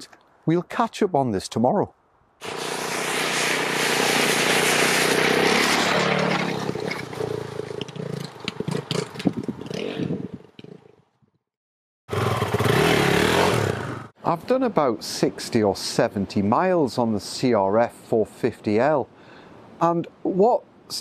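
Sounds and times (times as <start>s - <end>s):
motorcycle splashing through water: 2.4s - 7.4s, 12.1s - 13.8s
motorcycle engine running: 12.1s - 14.1s.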